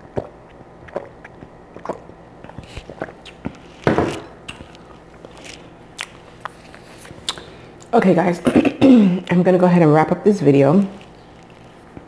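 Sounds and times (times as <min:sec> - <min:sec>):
mouth chewing sounds: 0:00.0 - 0:07.9, 0:10.8 - 0:12.0.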